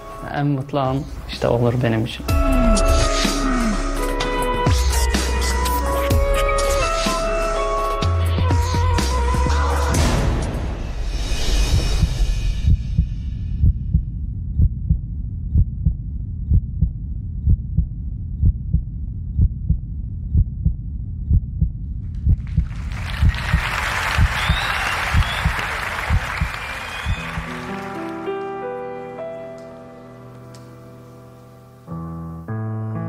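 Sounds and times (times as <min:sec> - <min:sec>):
heartbeat low thuds: 0:11.9 - 0:26.5.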